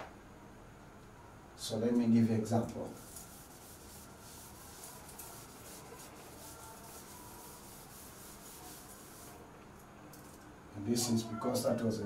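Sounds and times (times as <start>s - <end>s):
cloth wiping a chalkboard: 2.8s - 9.5s.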